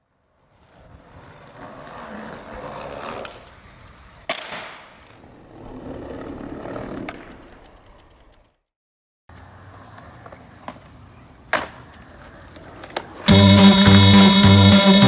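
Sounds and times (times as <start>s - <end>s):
skateboard wheels rolling on pavement: 0.0s - 8.6s, 9.3s - 15.0s
skateboard click: 2.6s - 8.5s, 9.3s - 13.3s.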